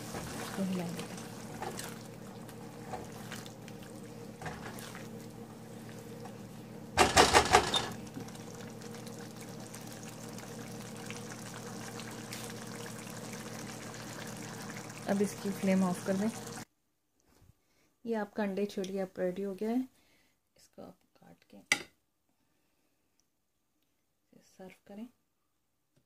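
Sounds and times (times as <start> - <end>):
curry bubbling in a pan: 0.0 - 16.6.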